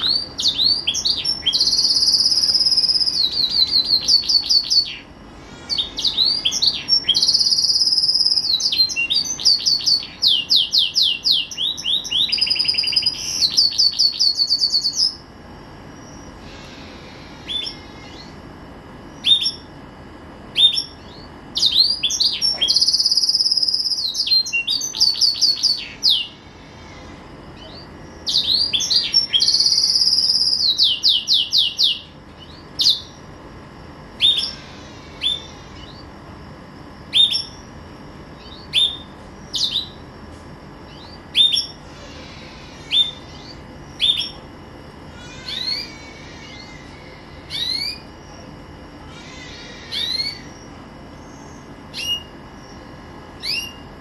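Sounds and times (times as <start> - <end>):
canary singing trills: 0.0 - 54.0.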